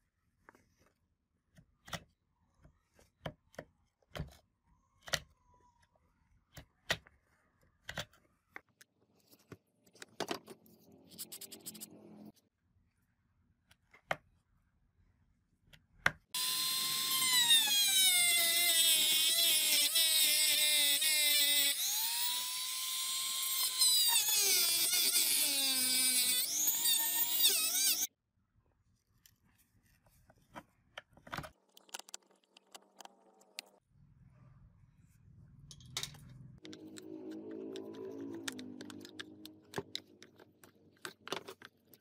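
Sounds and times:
rotary tool grinding metal: 16.4s - 28.1s.

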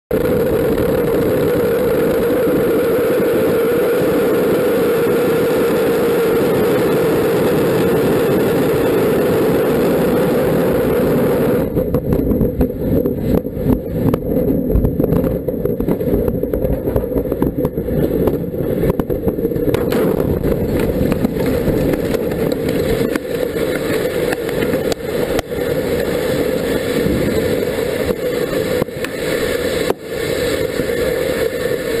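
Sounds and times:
fire crackling rumble: 0.1s - 32.0s
rocket engines roaring: 0.1s - 32.0s
rocket explosion cracks: 10.6s - 30.2s.

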